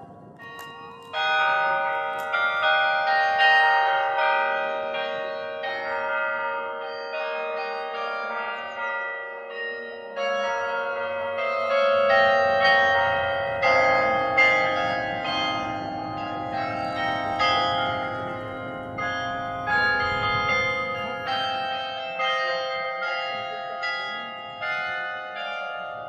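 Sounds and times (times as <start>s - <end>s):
carillon bells playing melody: 0.0s - 26.0s.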